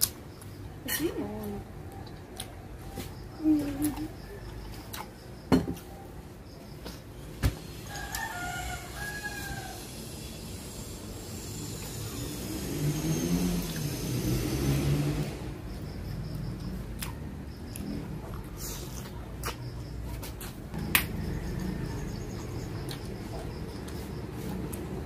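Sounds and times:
rooster crowing: 0:07.7 - 0:10.4, 0:20.8 - 0:22.8.

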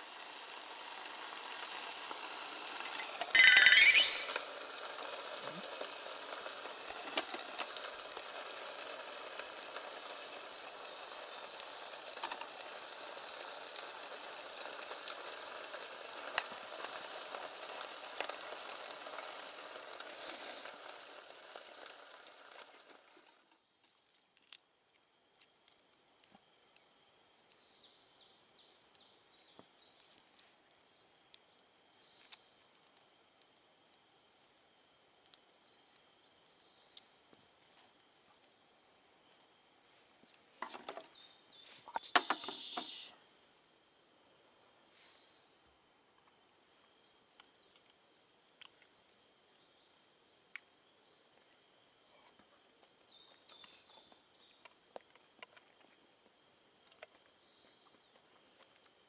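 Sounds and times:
camp stove hissing: 0:00.0 - 0:03.2, 0:04.5 - 0:23.4, 0:31.5 - 0:45.9
faint high chirps: 0:03.4 - 0:04.5.

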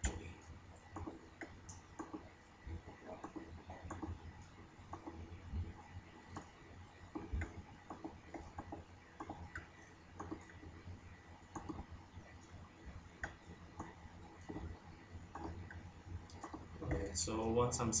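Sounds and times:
computer mouse clicking: 0:00.9 - 0:05.2, 0:06.3 - 0:10.7, 0:11.5 - 0:12.6, 0:13.2 - 0:16.7.

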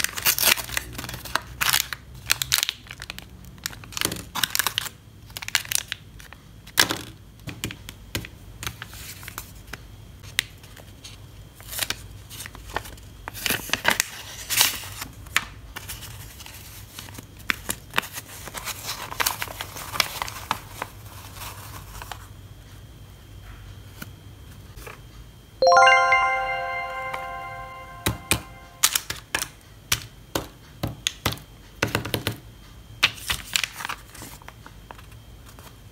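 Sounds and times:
packaging crinkling and rustling: 0:02.5 - 0:06.3.

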